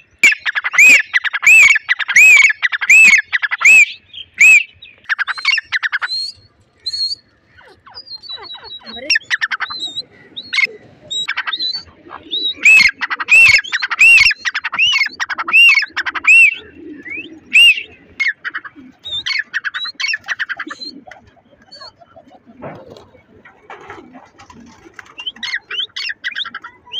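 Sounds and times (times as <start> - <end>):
francolin clicking and whistling: 0.2 - 7.3, 7.9 - 22.0
pigeon cooing: 6.9 - 26.9.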